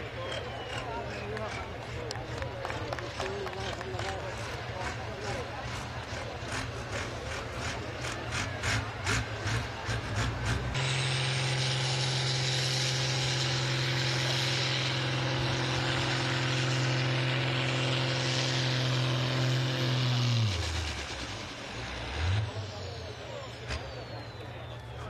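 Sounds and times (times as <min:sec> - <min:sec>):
tractor diesel engine droning: 0:00.0 - 0:25.0.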